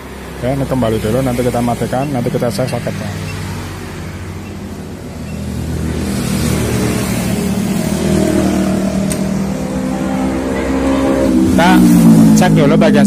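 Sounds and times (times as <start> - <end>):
motorcycle engine running: 3.6 - 13.0.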